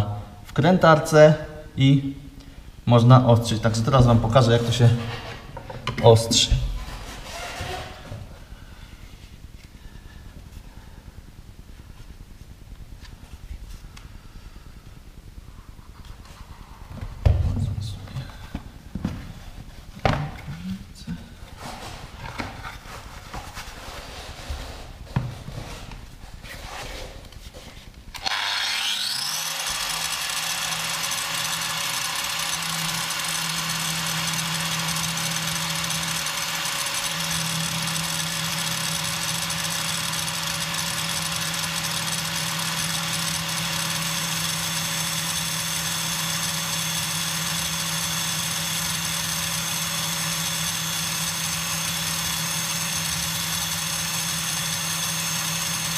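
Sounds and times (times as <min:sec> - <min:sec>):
angle grinder whining: 0:28.1 - 0:55.9
electrode grinding against disc: 0:28.1 - 0:55.9.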